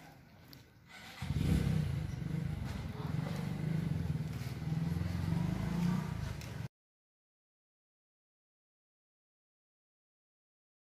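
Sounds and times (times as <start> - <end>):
motorcycle engine idling: 0.9 - 6.7.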